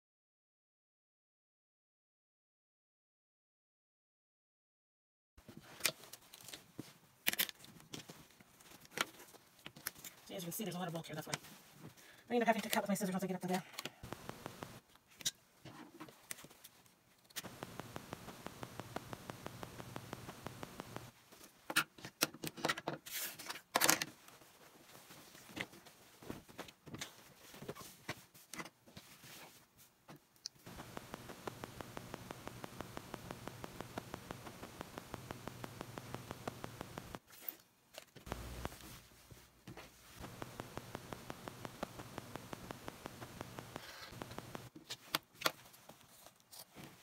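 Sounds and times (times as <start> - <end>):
fast regular ticking: 14.0 - 14.8, 17.4 - 21.1, 30.7 - 37.2, 38.3 - 38.8, 40.2 - 44.7.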